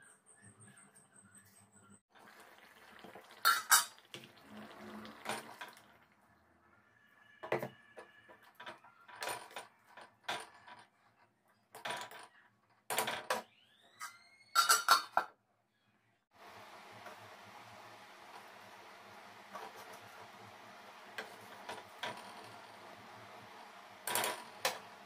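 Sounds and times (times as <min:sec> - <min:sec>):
metal cookware clanking: 0:02.9 - 0:05.8, 0:14.6 - 0:15.3.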